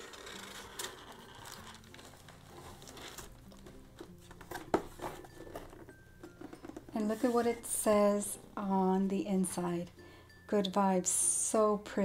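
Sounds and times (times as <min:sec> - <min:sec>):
cardboard box rustling: 0:00.0 - 0:07.6.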